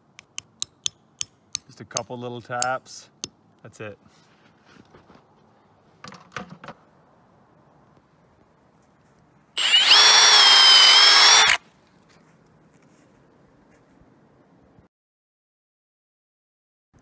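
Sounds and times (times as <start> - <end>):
power drill boring into wood: 9.6 - 11.6.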